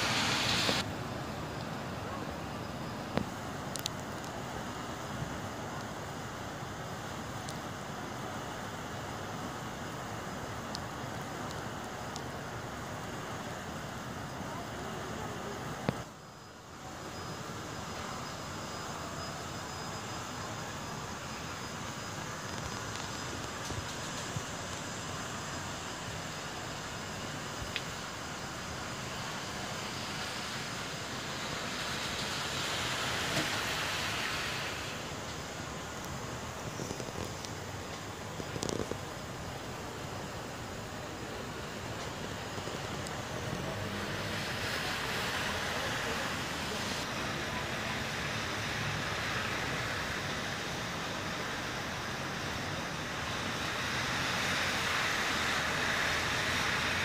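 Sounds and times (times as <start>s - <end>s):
car driving on slushy road: 0.0s - 0.9s, 29.0s - 38.6s, 42.9s - 51.3s, 52.4s - 57.0s
outdoor hiss: 0.0s - 57.0s.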